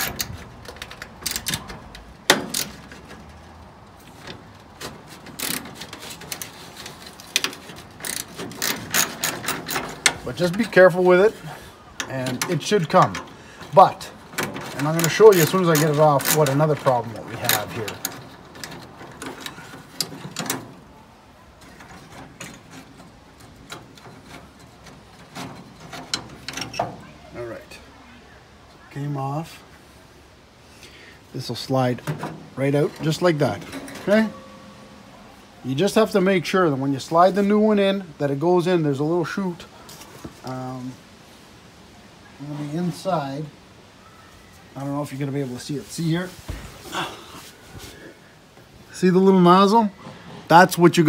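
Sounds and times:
wrench clicking and scraping on screw: 0.0s - 3.3s, 4.2s - 10.8s, 14.4s - 20.8s.

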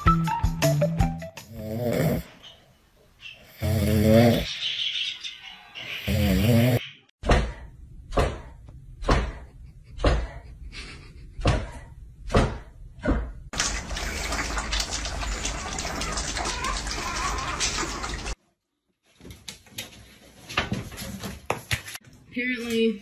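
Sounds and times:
puppies lapping and chewing: 13.6s - 18.4s.

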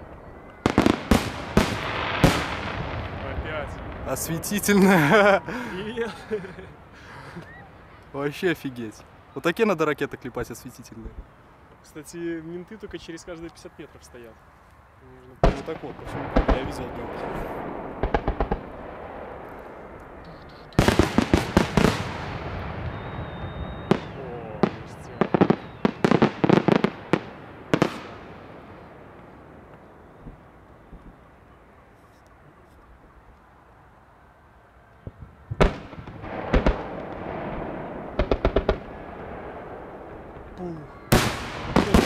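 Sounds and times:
fireworks bangs: 0.0s - 9.3s, 15.4s - 31.4s, 35.0s - 42.0s
low fireworks rumble: 0.0s - 42.0s.

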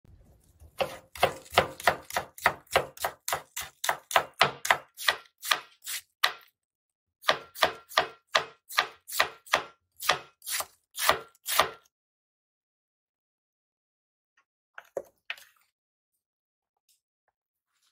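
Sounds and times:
knife chopping on cutting board: 0.8s - 6.5s, 7.2s - 11.8s.

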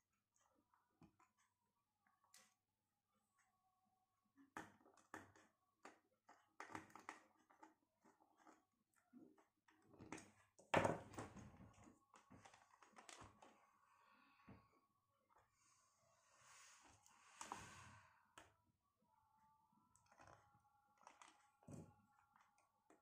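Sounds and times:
faint clicks and taps: 4.4s - 13.6s.

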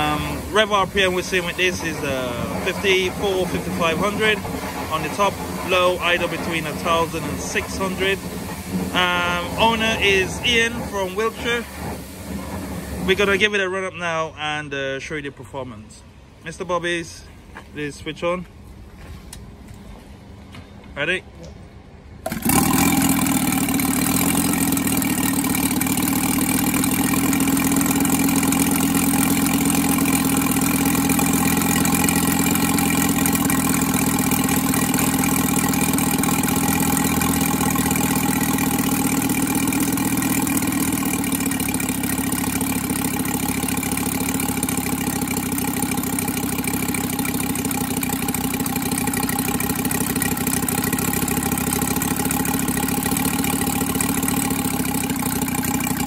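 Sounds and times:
model radial engine running: 0.0s - 13.9s, 22.2s - 56.0s.

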